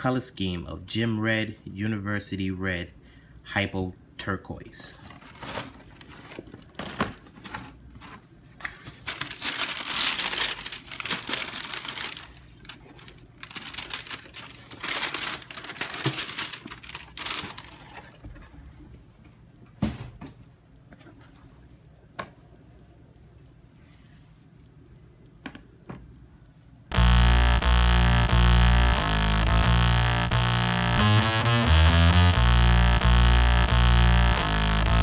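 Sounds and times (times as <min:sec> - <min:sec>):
tissue paper rustling: 0:04.9 - 0:18.2.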